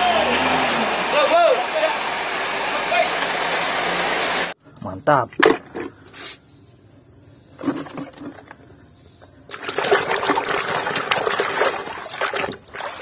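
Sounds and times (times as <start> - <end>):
hand splashing in soapy water: 9.5 - 13.0.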